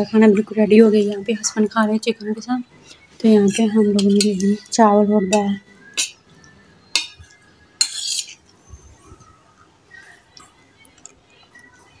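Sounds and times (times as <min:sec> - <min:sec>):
metal spoon clinking on bowl: 0:03.4 - 0:04.7, 0:05.3 - 0:06.2, 0:06.9 - 0:08.4.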